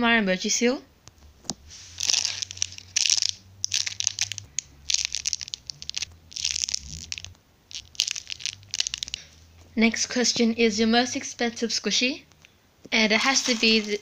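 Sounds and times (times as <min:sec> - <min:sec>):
foam squishy being squeezed: 0:01.6 - 0:09.4.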